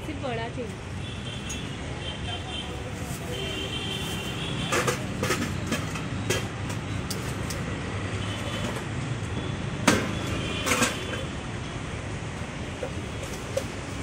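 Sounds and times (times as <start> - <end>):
low rumble of busy street stall: 0.0 - 14.0
metal utensils clinking on pots: 4.6 - 7.6, 10.6 - 11.3.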